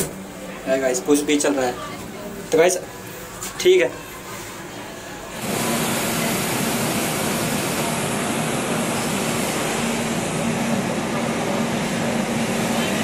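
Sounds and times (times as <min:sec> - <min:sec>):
train rushing noise: 0:05.4 - 0:13.0.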